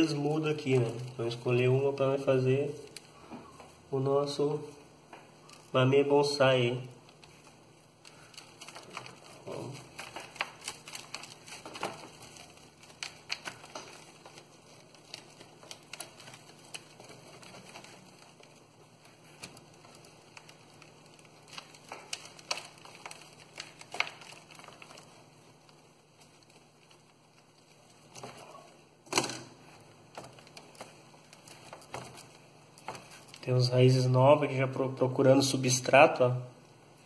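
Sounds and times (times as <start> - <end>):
leaves rustling: 0.0 - 34.1
soil crackling and crumbling: 5.4 - 34.6.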